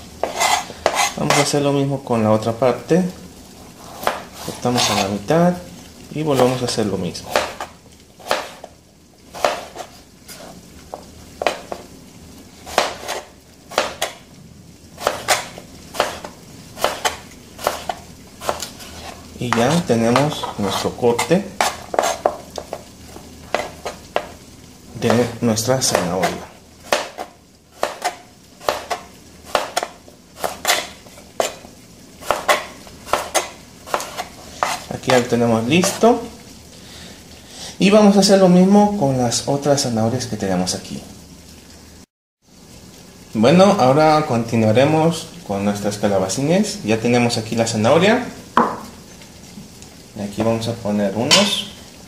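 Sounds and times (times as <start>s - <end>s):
knife slicing carrot: 3.8s - 5.2s, 6.4s - 8.7s, 9.4s - 10.5s, 12.7s - 14.2s, 15.0s - 22.8s, 25.0s - 36.1s
knife tapping cutting board: 7.3s - 7.7s, 9.4s - 9.9s, 10.9s - 11.9s, 12.7s - 14.2s, 15.0s - 18.7s, 19.5s - 22.9s, 23.5s - 24.4s, 25.0s - 31.6s, 32.3s - 36.0s, 48.6s - 48.9s.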